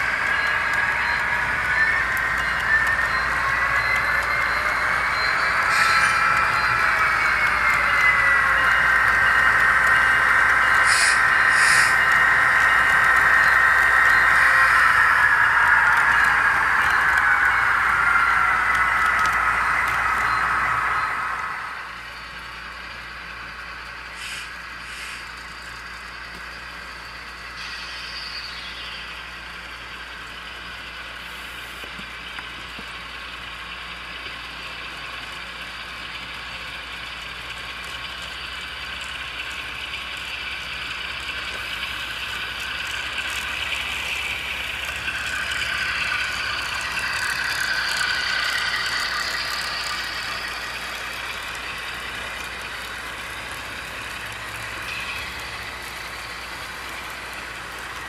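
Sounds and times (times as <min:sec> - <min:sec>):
model train running on track: 0:00.0 - 0:58.0.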